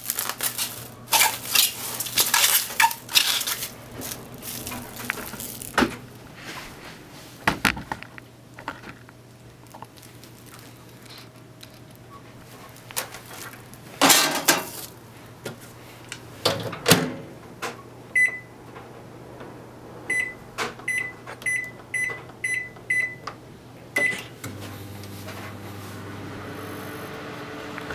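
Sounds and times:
microwave oven humming: 0:00.0 - 0:07.2, 0:16.2 - 0:27.9
control panel beeps: 0:20.1 - 0:23.3.

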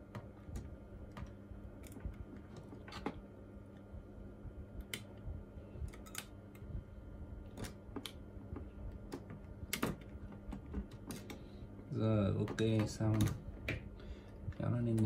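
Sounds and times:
faint steady hum: 0:00.0 - 0:15.0
sharp little clicks and taps: 0:12.4 - 0:13.9.

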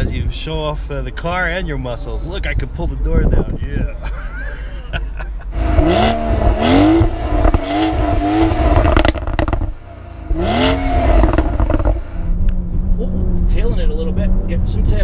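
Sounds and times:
car engine revving: 0:05.4 - 0:15.0
exhaust pops and crackles: 0:05.4 - 0:15.0.

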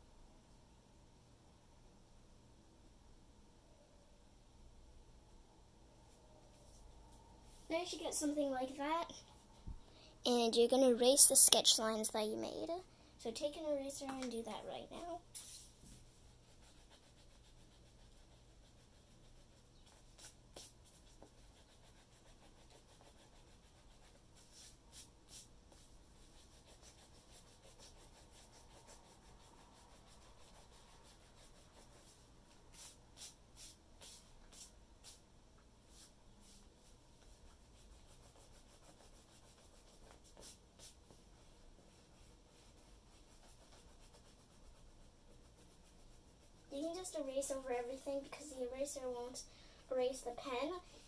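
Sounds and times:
eraser rubbing on paper: 0:15.4 - 0:35.2, 0:35.9 - 0:47.9.

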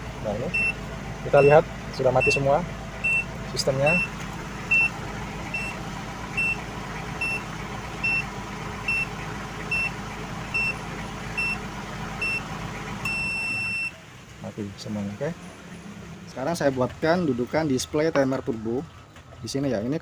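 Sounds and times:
diesel engine idling: 0:00.0 - 0:20.0
timer beeps: 0:03.1 - 0:03.3.

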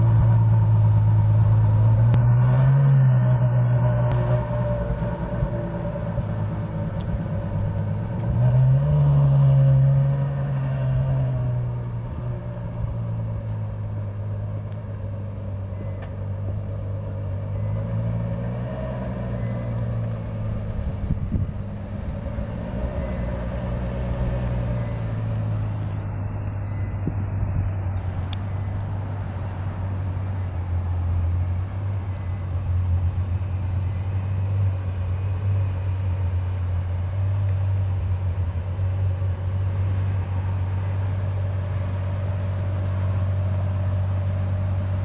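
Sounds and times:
car engine revving: 0:00.0 - 0:26.4.

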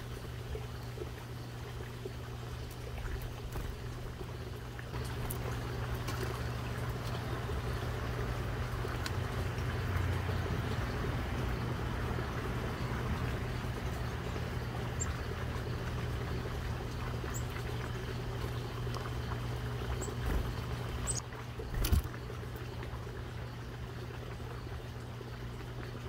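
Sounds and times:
low outdoor hum: 0:00.0 - 0:26.0
small birds chirping: 0:13.2 - 0:22.8.

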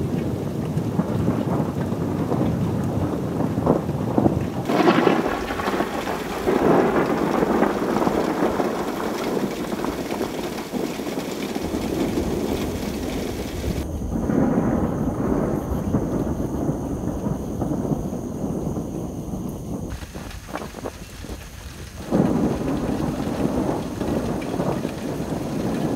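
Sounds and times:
rolling thunder: 0:00.0 - 0:25.9
steady rain: 0:00.0 - 0:25.9.

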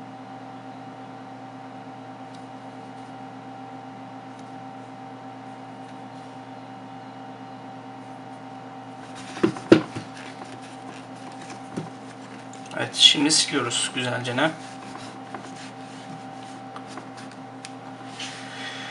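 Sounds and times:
appliance humming: 0:00.0 - 0:18.9
phone knocking on desk: 0:09.3 - 0:10.1
cloth wiping screen: 0:14.4 - 0:17.3.

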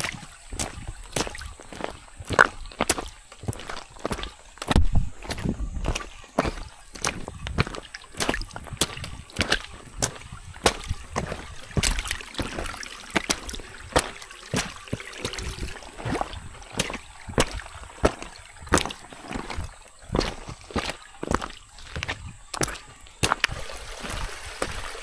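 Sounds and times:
footsteps splashing in stream: 0:00.0 - 0:25.0
running stream water: 0:00.0 - 0:25.0.

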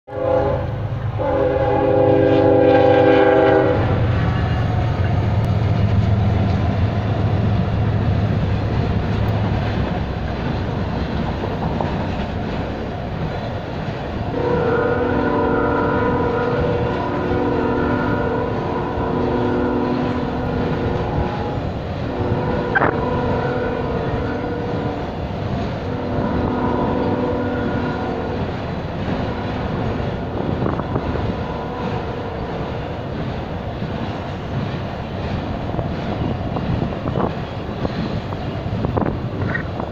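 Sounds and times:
locomotive air horn chord: 0:00.1 - 0:04.7, 0:14.3 - 0:25.1, 0:25.8 - 0:28.5, 0:29.3 - 0:32.6
rail cars clattering by: 0:00.1 - 0:39.9.

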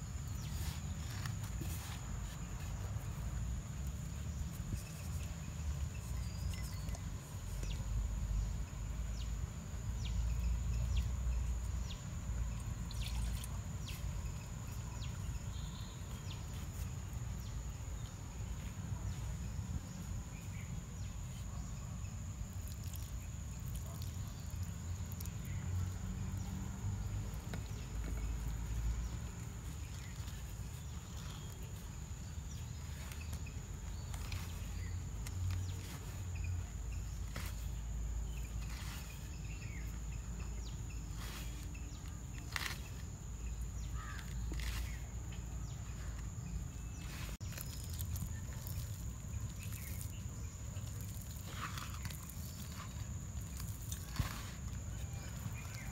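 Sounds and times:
hands kneading dough: 0:10.8 - 0:55.9.

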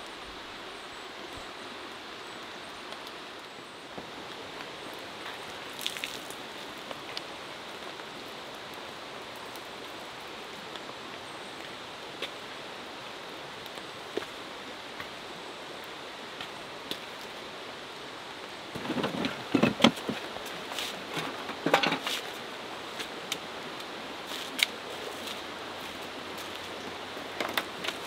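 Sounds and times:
steady rain hiss: 0:00.0 - 0:28.0
camping gear clattering: 0:18.7 - 0:22.4.

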